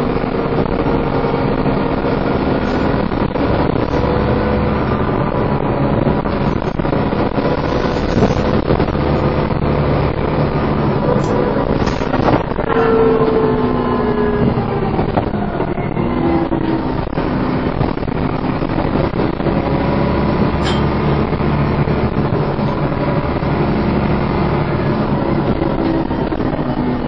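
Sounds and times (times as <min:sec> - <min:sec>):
bus engine whining: 0:00.0 - 0:27.0
low road rumble: 0:00.0 - 0:27.0.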